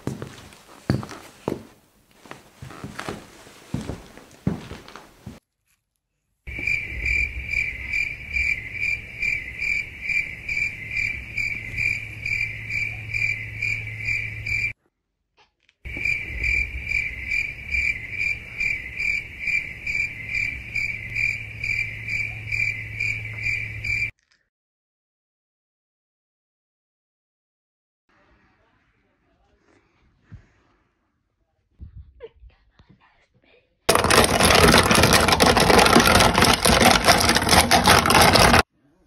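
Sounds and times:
cricket chirping: 6.5 - 14.8, 15.9 - 24.1.

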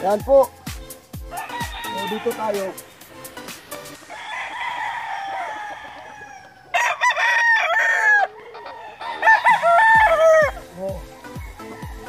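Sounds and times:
rooster crowing: 1.3 - 2.8, 4.0 - 12.0.

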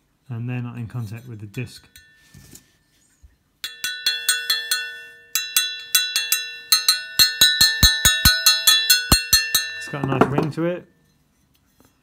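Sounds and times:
metal disc ringing when tapped: 3.6 - 10.4.

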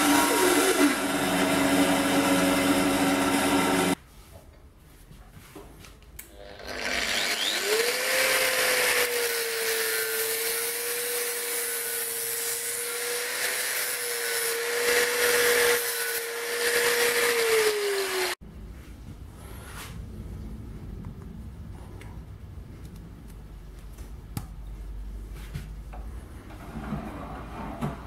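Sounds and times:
angle grinder cutting metal: 0.0 - 4.0, 6.3 - 18.4.

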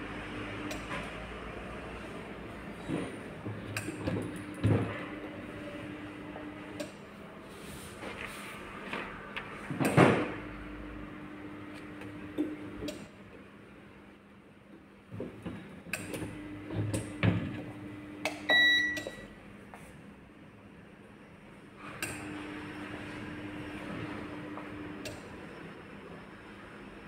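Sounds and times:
short electronic beep: 18.5 - 19.3.

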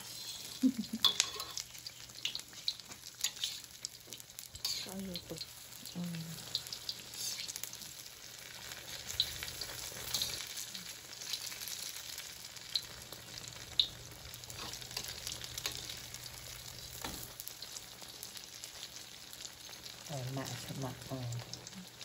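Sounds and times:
egg sizzling in oil: 0.0 - 22.0
metal tongs clicking on pan: 1.0 - 1.6, 10.1 - 10.4, 14.6 - 16.0.

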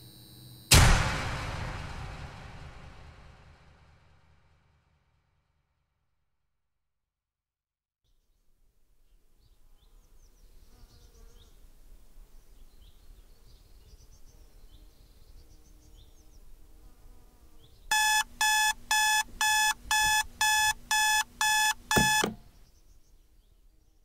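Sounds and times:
alarm clock beeping: 17.9 - 22.4
faint high chirps: 17.9 - 22.4.

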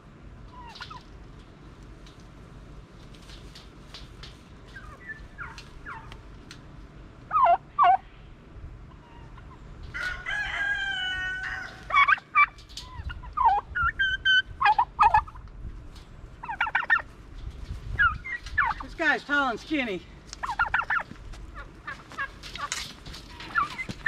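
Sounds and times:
rooster crowing: 9.9 - 12.1
poultry calls falling in pitch: 9.9 - 15.4.

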